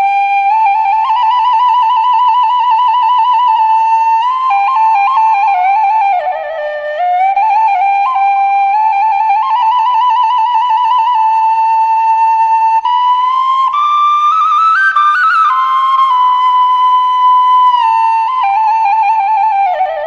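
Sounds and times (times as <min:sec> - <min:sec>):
bamboo flute melody with trills: 0:00.0 - 0:20.0.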